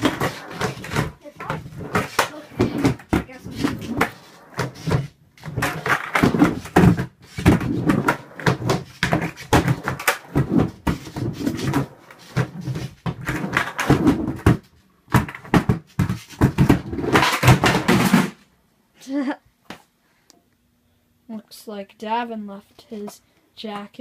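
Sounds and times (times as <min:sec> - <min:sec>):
skateboard wheels rolling on concrete: 0:00.0 - 0:18.4.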